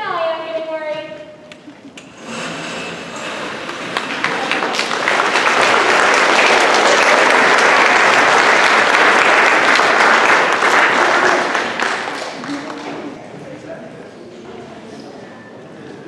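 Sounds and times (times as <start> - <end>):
audience applauding: 3.2 - 13.2.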